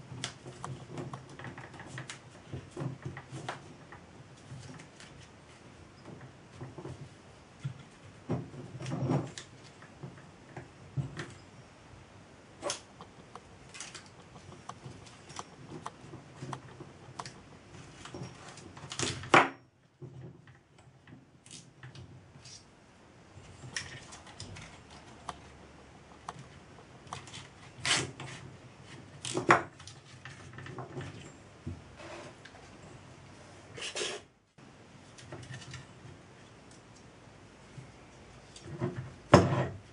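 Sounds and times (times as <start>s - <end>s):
handling clicks and knocks: 12.7s - 22.2s.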